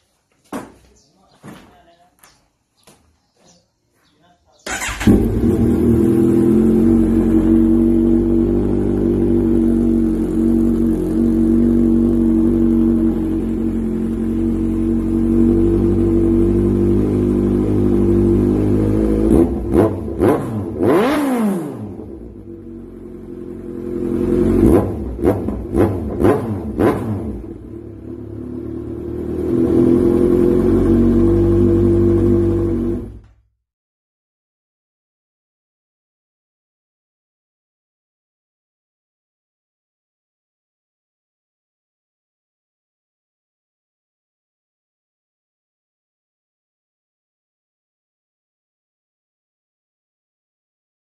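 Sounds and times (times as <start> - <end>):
motorcycle engine idling and revving: 4.7 - 33.5.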